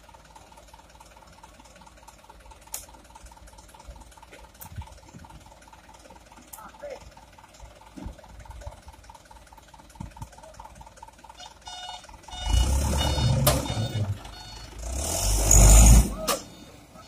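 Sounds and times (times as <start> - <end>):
diesel engine revving: 0.0 - 17.0
truck reversing beeper: 11.0 - 17.0.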